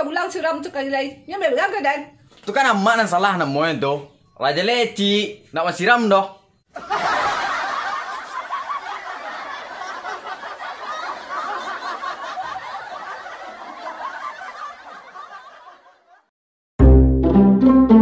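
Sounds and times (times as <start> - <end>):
crowd laughing: 6.7 - 16.3
plucked string music: 16.8 - 18.0.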